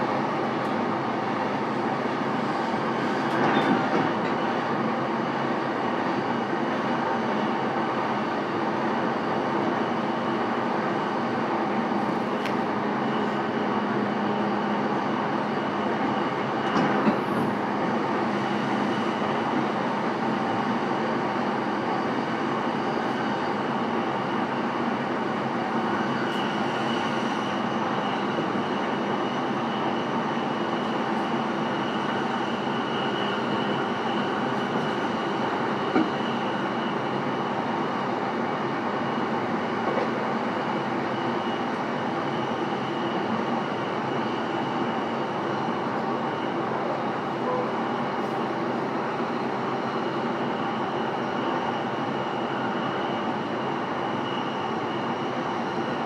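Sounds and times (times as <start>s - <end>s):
wheels rumbling on rail: 0.0s - 9.9s, 10.5s - 28.9s.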